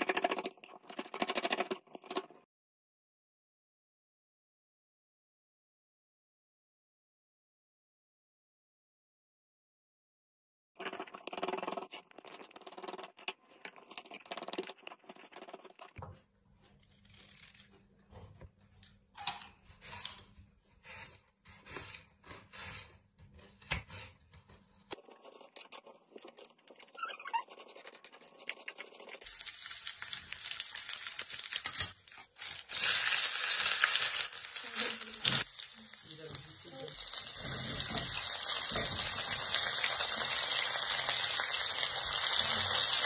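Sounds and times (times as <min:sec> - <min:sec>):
oil sizzling in a pan: 0:29.2 - 0:43.0.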